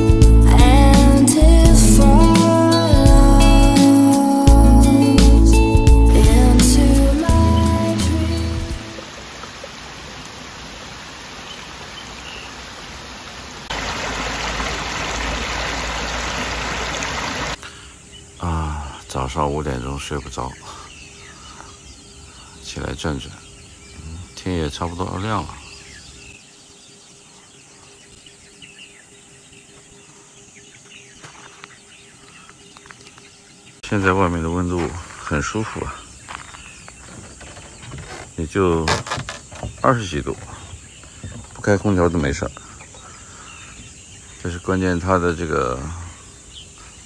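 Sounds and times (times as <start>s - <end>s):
birds chirping: 0.0s - 47.0s
insects trilling: 6.3s - 47.0s
stream running over stones: 8.8s - 17.6s.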